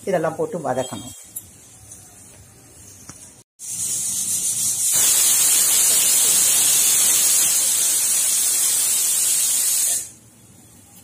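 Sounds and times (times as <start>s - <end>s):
pressure cooker steam hissing: 3.6s - 10.2s.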